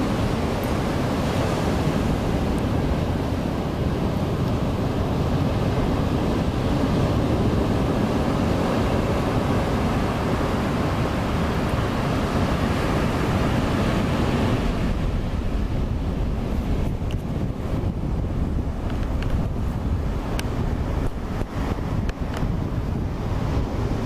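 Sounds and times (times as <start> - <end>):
sea surf breaking on beach: 0.0 - 24.0
wind rumbling on microphone: 0.0 - 24.0.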